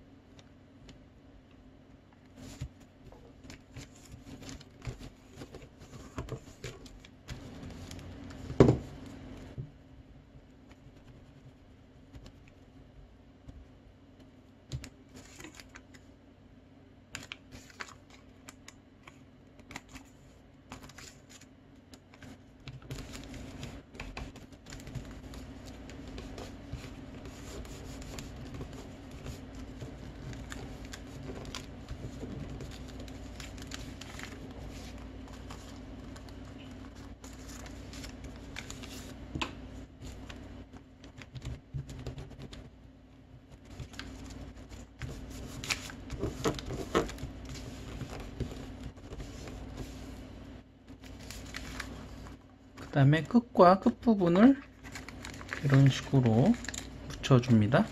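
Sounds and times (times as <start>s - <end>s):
steady low hum: 0.0s - 57.9s
paper crinkling and creasing: 2.3s - 9.2s, 15.1s - 16.0s, 17.2s - 39.2s, 39.8s - 42.7s, 43.4s - 53.0s, 54.0s - 57.9s.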